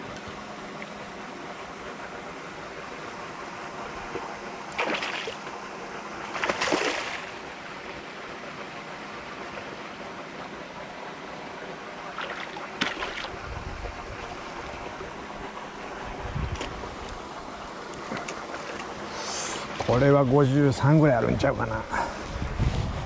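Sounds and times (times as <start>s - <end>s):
water lapping: 0.8s - 22.5s
fish splashing at water surface: 4.7s - 5.5s, 6.2s - 7.6s, 12.1s - 13.4s.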